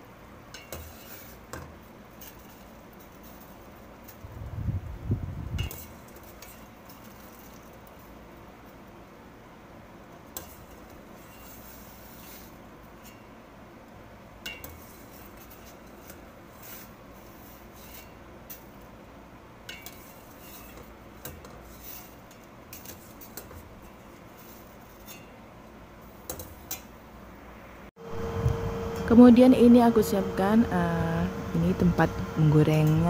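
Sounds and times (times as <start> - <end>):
low hum: 27.5 - 33.0.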